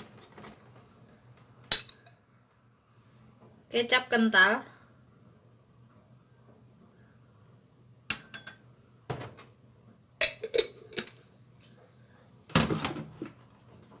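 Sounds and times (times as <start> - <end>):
metal spoon clinking against bowl: 8.1 - 8.6.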